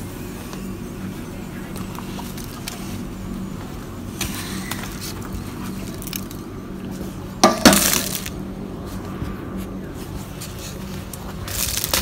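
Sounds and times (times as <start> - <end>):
low steady hum: 0.0 - 12.0
salt crust cracking: 11.4 - 12.0.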